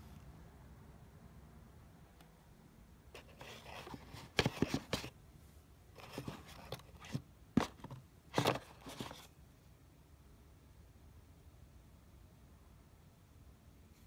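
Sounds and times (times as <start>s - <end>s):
cardboard scraping and rustling: 3.2s - 5.2s, 6.0s - 9.3s.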